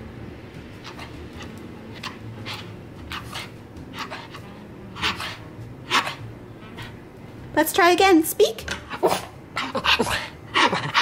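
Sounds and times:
dog huffing and barking: 0.8 - 7.0, 8.9 - 11.0.

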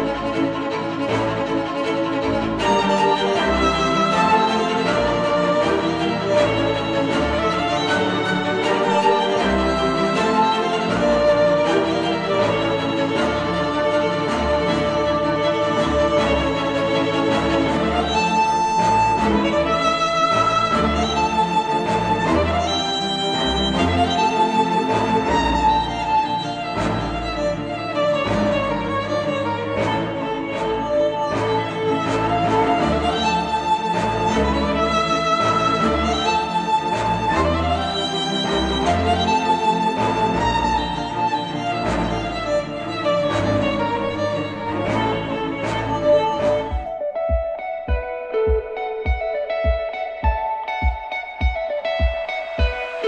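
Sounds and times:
violin and strings music: 0.0 - 53.0
slow beat: 46.5 - 53.0.

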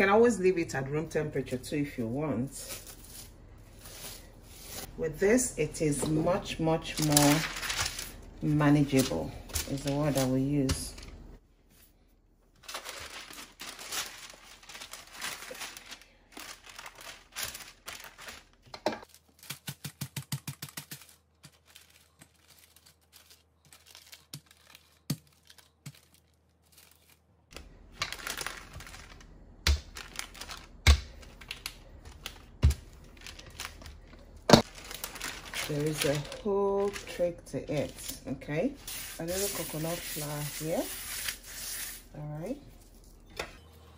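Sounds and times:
parchment paper crinkling: 6.3 - 11.2, 12.5 - 38.2.

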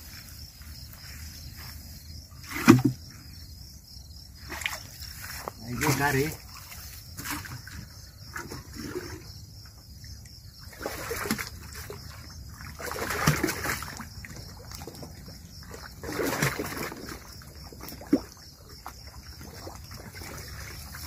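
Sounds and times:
water splashing in a bucket: 2.4 - 3.1, 4.4 - 9.3, 10.6 - 21.0.

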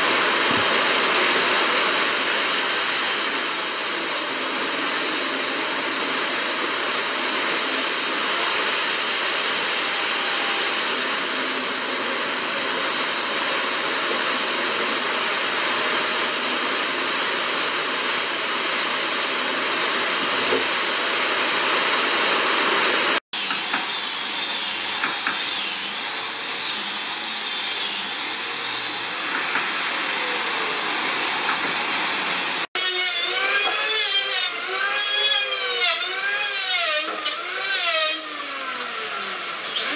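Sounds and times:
sandpaper rubbing on wood: 33.1 - 39.9.

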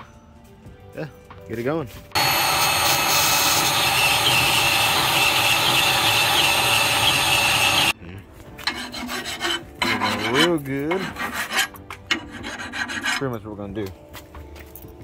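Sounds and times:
band saw cutting steel: 2.2 - 8.0, 8.6 - 13.4
file rasping on steel: 2.2 - 8.0, 8.6 - 13.4.

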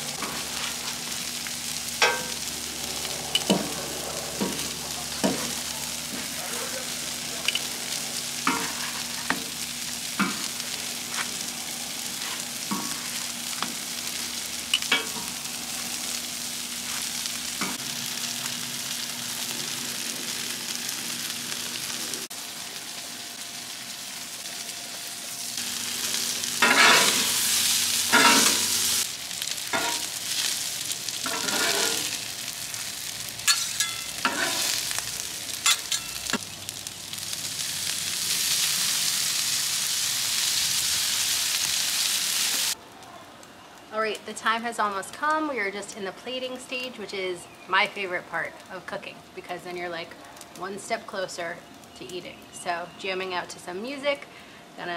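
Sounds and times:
food sizzling on griddle: 0.0 - 42.8
metal spatulas scraping griddle: 3.1 - 5.6, 26.6 - 27.4, 28.1 - 28.7, 31.2 - 32.2, 33.5 - 34.9, 35.7 - 36.4.

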